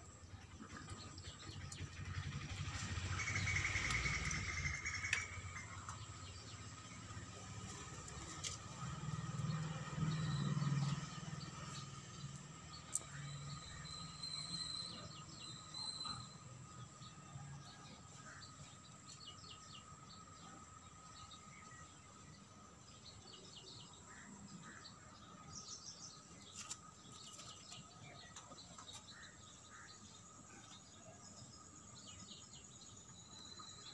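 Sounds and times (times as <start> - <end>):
birds chirping: 0.0 - 33.9.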